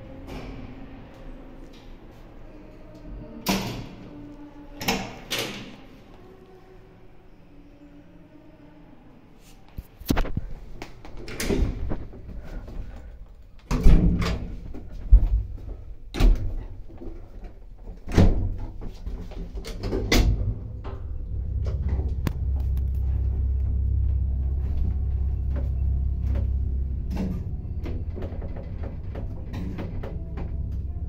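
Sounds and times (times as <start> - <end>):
lift motor low hum: 19.8 - 31.0.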